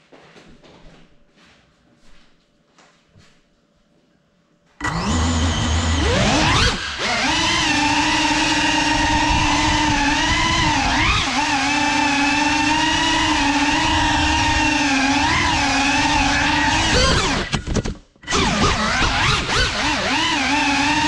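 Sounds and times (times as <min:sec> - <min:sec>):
drone motors whining: 0:04.8 - 0:21.0.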